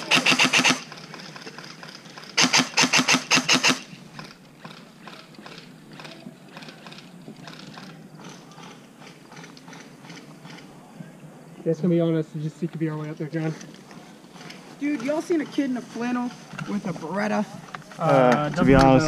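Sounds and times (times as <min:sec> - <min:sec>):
toy gun automatic burst: 0:00.0 - 0:04.3.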